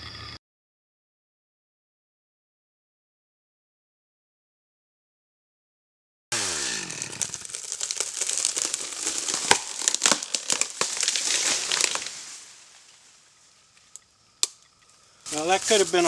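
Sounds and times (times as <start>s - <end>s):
tree trunk cracking and tearing: 6.4s - 13.0s.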